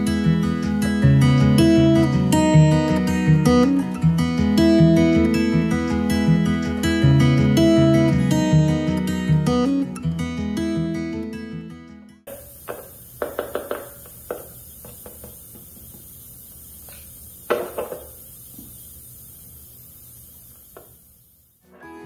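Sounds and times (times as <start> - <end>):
faint taps: 12.3 - 16.1.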